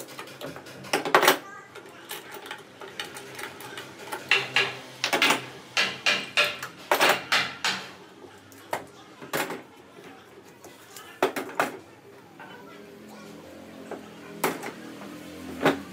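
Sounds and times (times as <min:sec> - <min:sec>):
clamps clicking and knocking: 0:00.0 - 0:08.0.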